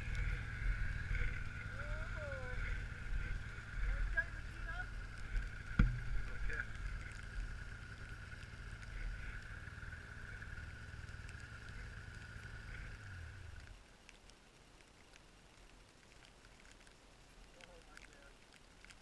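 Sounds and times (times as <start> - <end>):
snowmobile engine running: 0.0 - 13.6.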